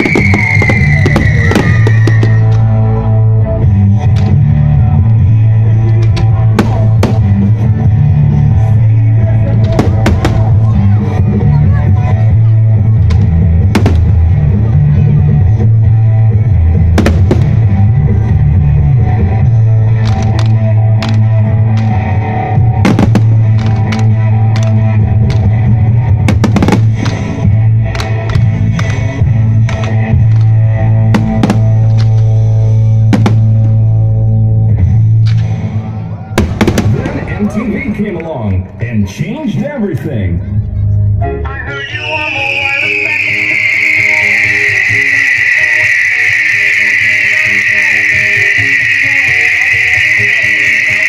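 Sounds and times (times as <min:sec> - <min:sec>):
fireworks cracking: 0:00.0 - 0:02.6, 0:13.2 - 0:14.4, 0:17.0 - 0:17.8, 0:22.8 - 0:25.5, 0:26.2 - 0:30.5, 0:33.2 - 0:33.8, 0:36.4 - 0:38.0
loud rock music: 0:00.0 - 0:38.1, 0:41.0 - 0:51.0.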